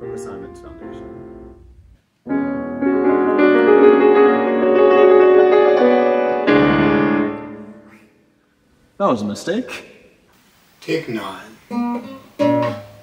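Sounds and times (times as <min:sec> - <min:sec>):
grand piano chords: 0:00.0 - 0:08.3.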